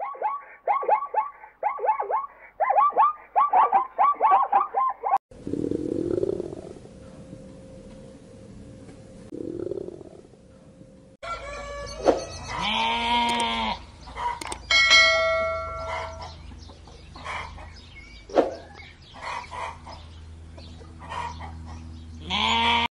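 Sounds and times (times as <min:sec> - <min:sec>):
low steady hum: 0:05.3 - 0:19.1
rooster crowing: 0:11.2 - 0:13.2
goats bleating: 0:12.5 - 0:13.8, 0:22.2 - 0:22.9.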